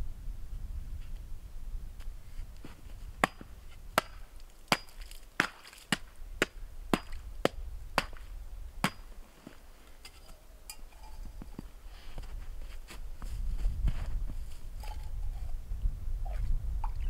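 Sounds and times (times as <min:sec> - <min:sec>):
tool chopping with sharp strikes: 0:03.2 - 0:08.2, 0:08.8 - 0:09.1.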